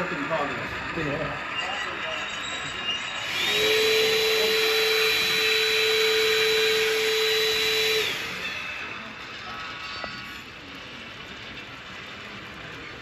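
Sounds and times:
electric motor whine: 3.2 - 9.1.

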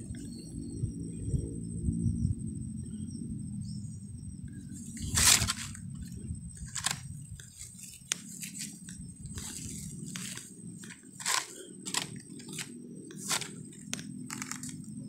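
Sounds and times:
sack rustling over dry leaves: 4.9 - 14.8.

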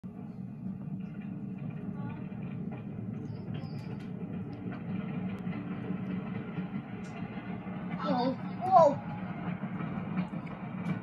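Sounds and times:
roller coaster train rumbling on track: 0.0 - 11.0.

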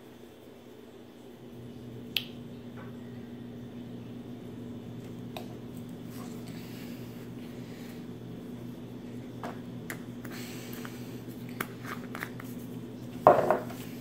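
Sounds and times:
steady low hum: 0.0 - 14.0
bottle knocking into cardboard box: 13.3 - 13.6.

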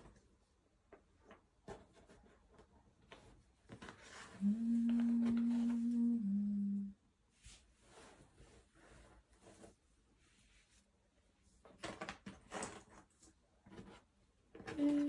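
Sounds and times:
person humming: 4.4 - 7.0, 14.7 - 15.0.

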